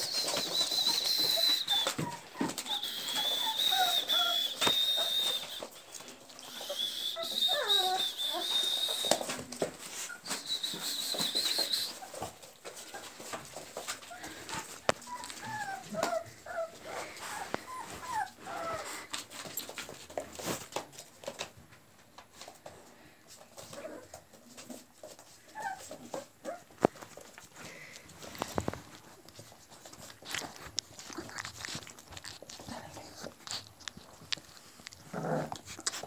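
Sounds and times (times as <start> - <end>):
puppies whimpering: 0.0 - 13.2, 14.0 - 19.2
small paws clicking and rustling: 0.0 - 36.0.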